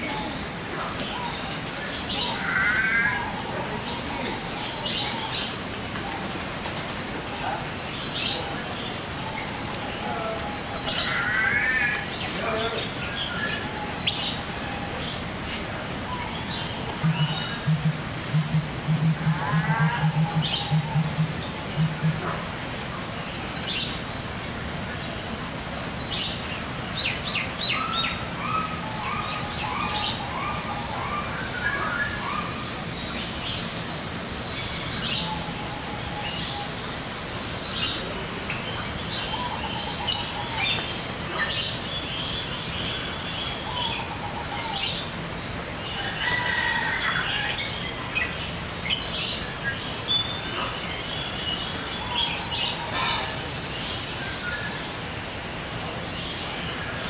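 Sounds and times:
birds chirping and calling: 0.0 - 24.0, 26.1 - 55.1
steady background noise: 0.0 - 57.0.

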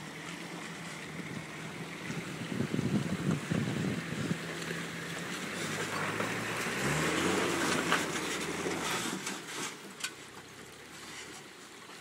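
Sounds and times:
diesel engine revving: 0.6 - 9.5.

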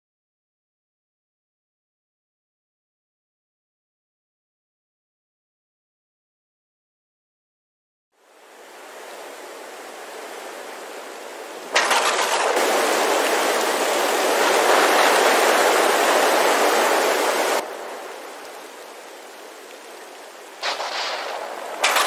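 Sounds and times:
loud rushing rain: 8.2 - 22.0.

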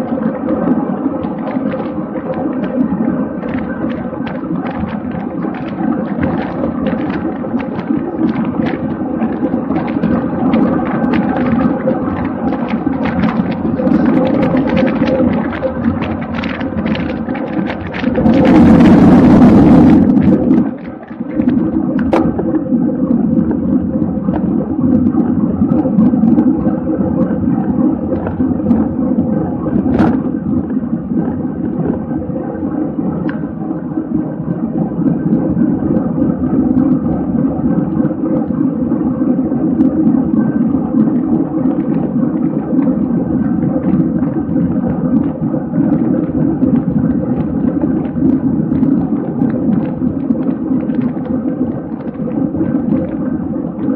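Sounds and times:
wind rush: 0.0 - 53.9
bicycle tyres rumbling on road: 1.4 - 22.6.

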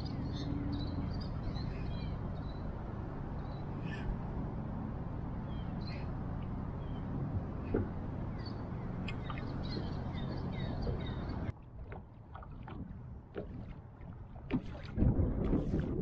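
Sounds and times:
water lapping against kayak hull: 8.7 - 16.0
wind gusting on microphone: 14.4 - 16.0.

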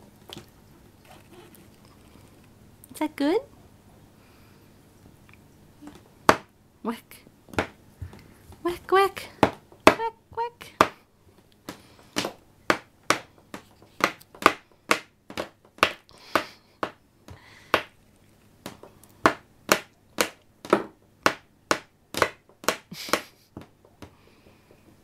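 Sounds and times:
cord slapping wooden floor: 7.5 - 8.7, 11.6 - 18.0, 18.6 - 24.2.

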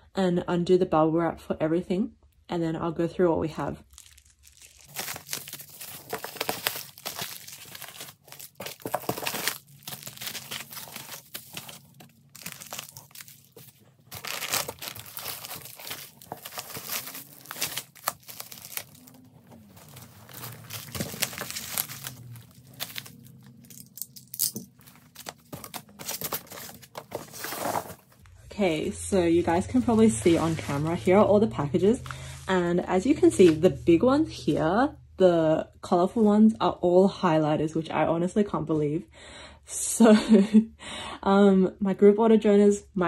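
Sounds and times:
bubble wrap and plastic crinkling: 3.8 - 28.2.

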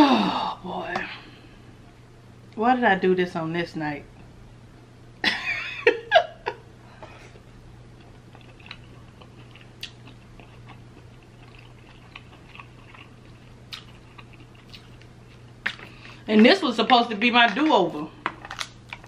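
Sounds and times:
person chewing: 7.3 - 16.3.

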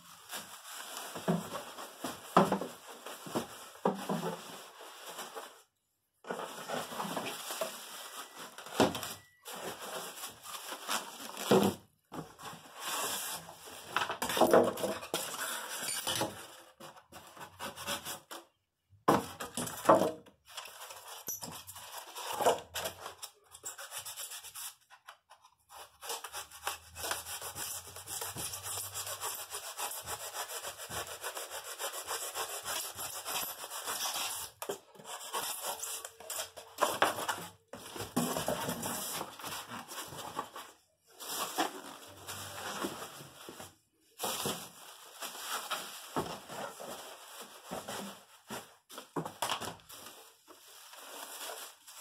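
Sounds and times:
foam and cardboard rubbing: 25.7 - 36.6.

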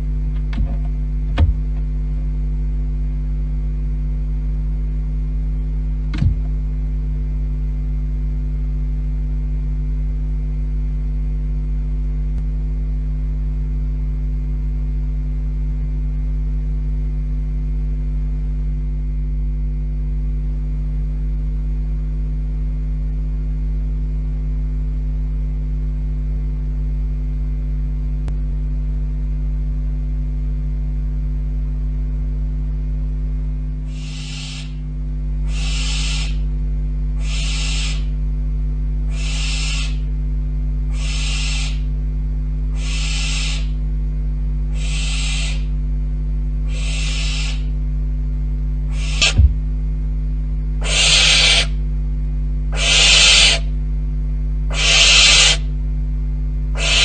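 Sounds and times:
electrical mains hum: 0.0 - 57.0
sharp knock: 49.2 - 49.6.

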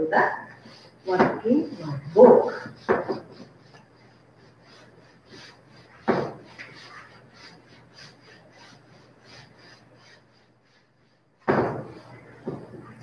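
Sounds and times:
duster rubbing on whiteboard: 0.0 - 13.0
sudden thump: 11.5 - 12.7.

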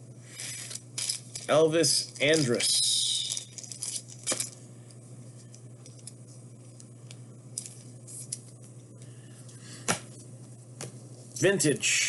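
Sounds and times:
steady low hum: 0.0 - 12.0
trading cards being handled: 0.3 - 4.6.

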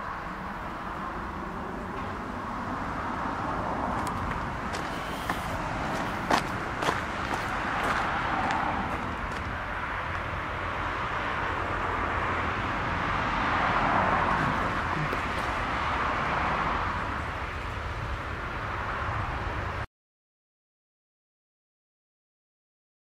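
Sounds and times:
steady outdoor hiss: 0.0 - 19.9.

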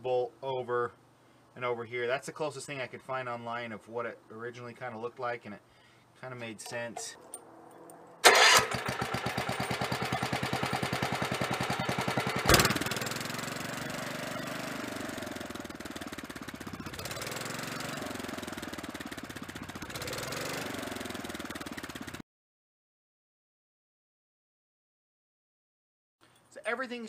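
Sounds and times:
engine bang: 7.3 - 13.4
single-cylinder engine running: 8.2 - 22.2.

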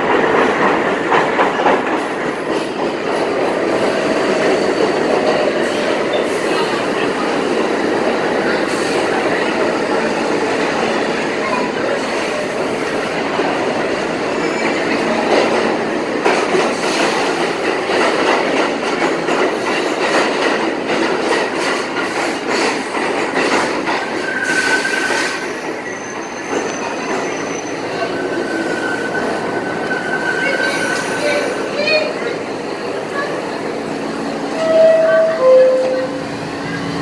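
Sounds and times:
subway train running: 0.0 - 37.0
high wheel squeals: 24.0 - 32.2.

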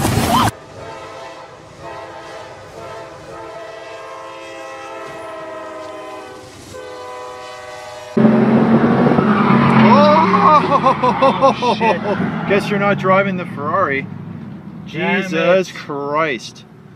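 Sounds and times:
locomotive air horn blast: 0.5 - 10.4.

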